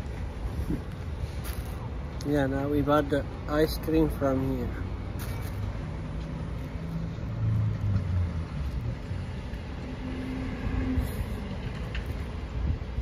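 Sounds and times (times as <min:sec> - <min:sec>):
car engines rumbling: 0:00.0 - 0:13.0
deeper engine hum: 0:03.2 - 0:13.0.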